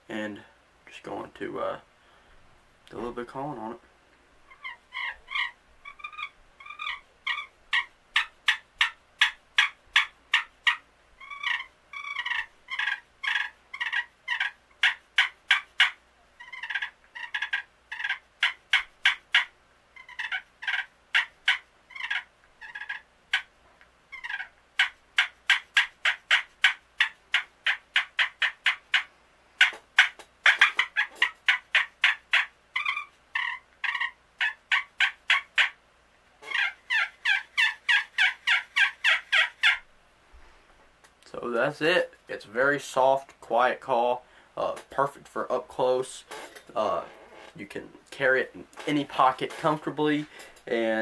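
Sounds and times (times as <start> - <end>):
turkey call yelps and clucks: 4.5 - 35.8, 36.4 - 39.9.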